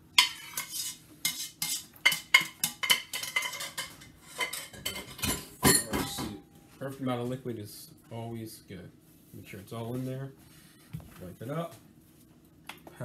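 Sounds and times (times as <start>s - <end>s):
metal utensil scraping a saucepan: 0.2s - 6.2s.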